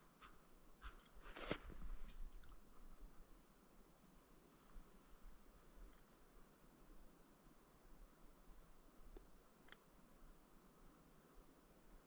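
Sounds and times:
faint rustles: 0.0 - 3.5.

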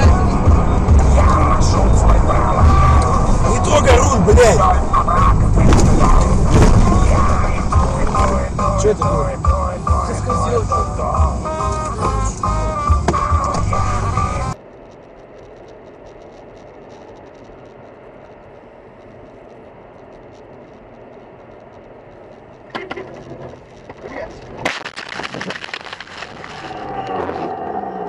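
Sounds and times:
muffled road noise: 0.0 - 28.0
rattling and scraping: 2.1 - 8.6
loud crash bang: 5.6 - 7.5.

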